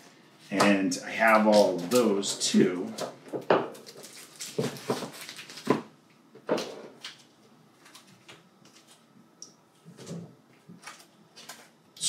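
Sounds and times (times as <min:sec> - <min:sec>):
plastic bags crinkling: 0:03.4 - 0:09.1, 0:10.0 - 0:11.8.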